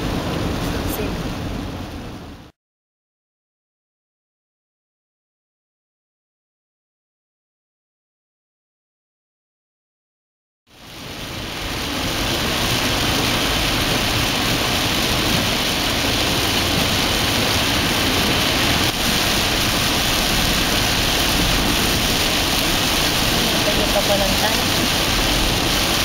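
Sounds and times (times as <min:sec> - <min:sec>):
rain hissing on car body: 0:00.0 - 0:02.5, 0:10.7 - 0:26.0
engine and road rumble: 0:00.0 - 0:02.6, 0:10.7 - 0:26.0
tyres on standing water: 0:13.5 - 0:26.0.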